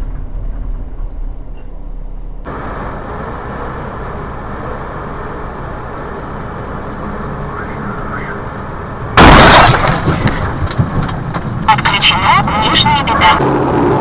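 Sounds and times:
hissy highway driving drone: 0:00.0 - 0:09.4
vehicle engine and road noise: 0:00.0 - 0:14.0.

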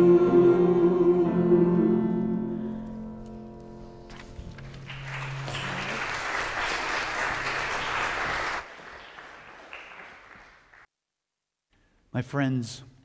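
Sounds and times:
congregation applauding: 0:04.1 - 0:10.9.

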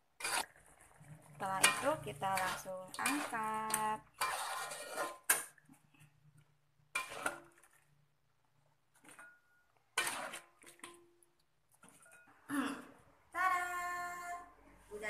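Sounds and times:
metal spatula scraping a wok: 0:00.2 - 0:05.6, 0:06.9 - 0:07.6, 0:09.1 - 0:10.6.

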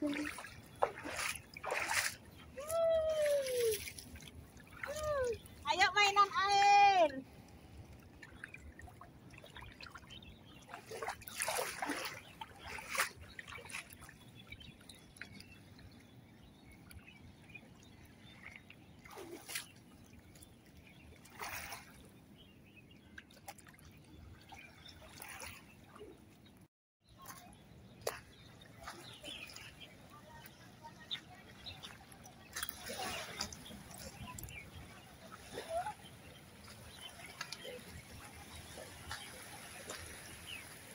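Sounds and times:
water splashing on pebbles: 0:00.0 - 0:07.0, 0:10.7 - 0:14.1, 0:30.4 - 0:35.9, 0:36.5 - 0:40.9
quiet steady water wash: 0:00.0 - 0:22.1, 0:27.2 - 0:40.9.

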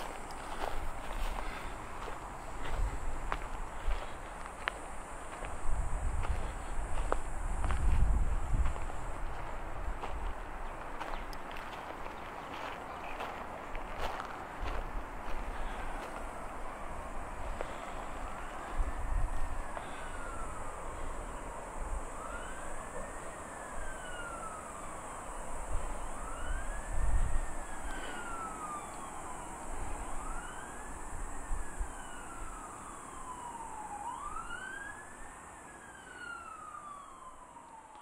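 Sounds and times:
siren wailing: 0:15.6 - 0:38.0.

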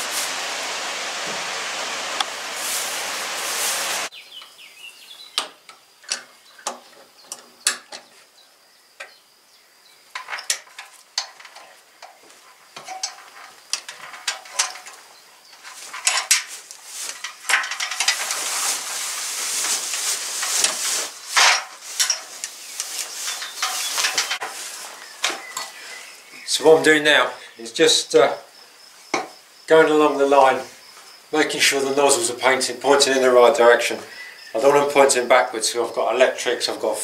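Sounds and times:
rustling: 0:00.0 - 0:04.2, 0:10.1 - 0:26.7.

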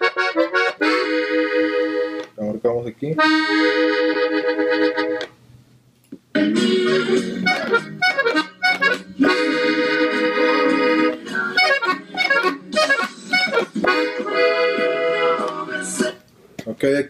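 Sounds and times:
button accordion melody: 0:00.0 - 0:02.3, 0:03.2 - 0:05.4, 0:06.4 - 0:16.2.

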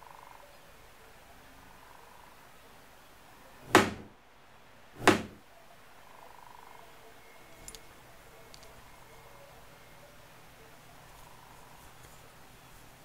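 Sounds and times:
hammer knocking on wood: 0:03.6 - 0:04.1, 0:05.0 - 0:05.4.

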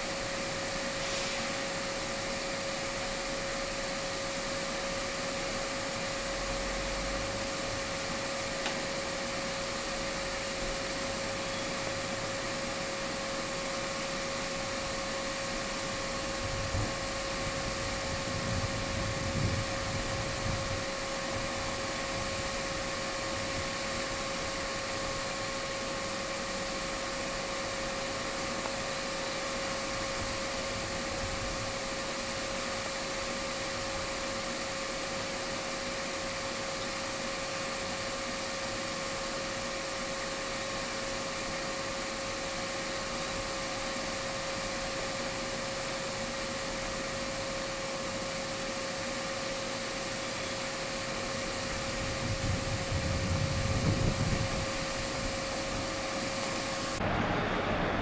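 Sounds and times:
diesel locomotives idling: 0:00.0 - 0:58.0
constant whine: 0:43.9 - 0:58.0.

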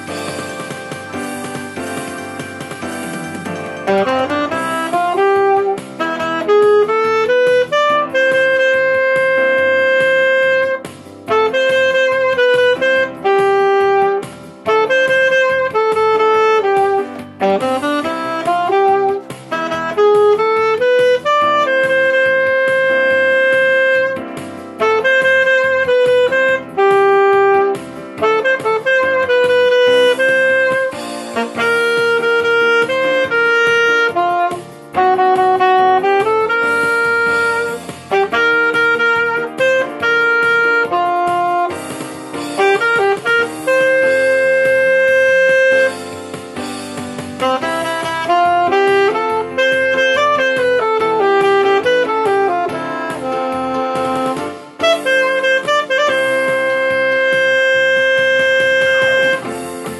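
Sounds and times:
alto saxophone melody: 0:00.0 - 0:59.9.

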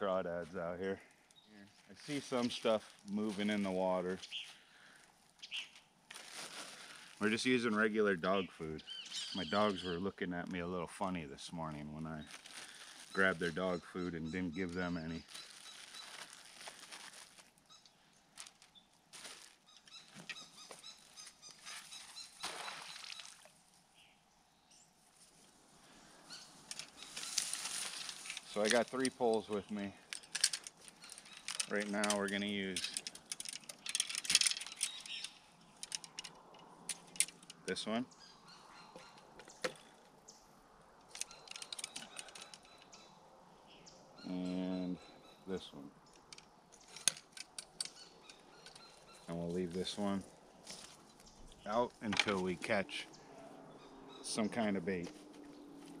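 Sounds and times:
small birds chirping: 0:00.0 - 0:56.0
rope rustling: 0:01.0 - 0:07.9, 0:12.2 - 0:13.7, 0:15.1 - 0:17.7, 0:18.3 - 0:23.5, 0:25.0 - 0:37.7, 0:41.0 - 0:43.0, 0:46.2 - 0:52.8.

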